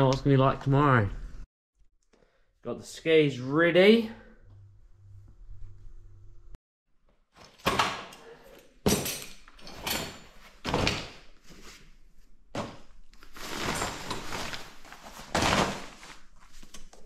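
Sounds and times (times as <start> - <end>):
bag rustling: 13.2 - 16.7.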